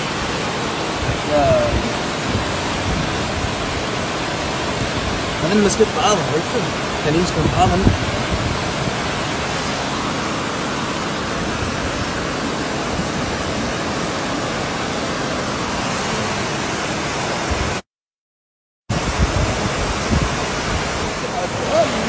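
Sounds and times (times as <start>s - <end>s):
floodwater rushing: 0.0s - 17.8s, 18.9s - 22.0s.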